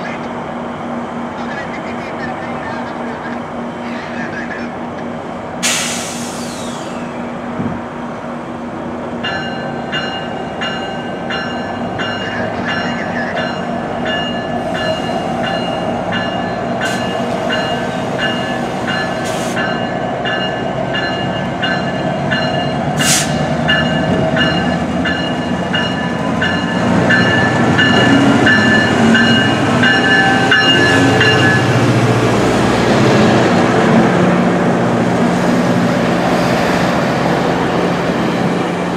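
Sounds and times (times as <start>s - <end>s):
diesel locomotive engine hum: 0.0s - 38.9s
train wheels rumbling: 0.0s - 38.9s
warning bell ringing: 9.2s - 22.9s, 23.6s - 31.8s.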